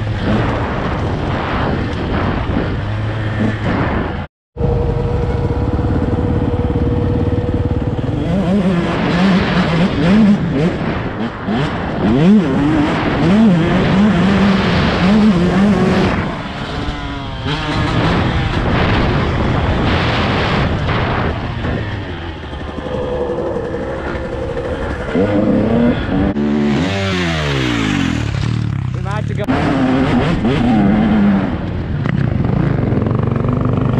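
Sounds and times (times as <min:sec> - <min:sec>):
dirt bike engine revving: 0:00.0 - 0:33.9.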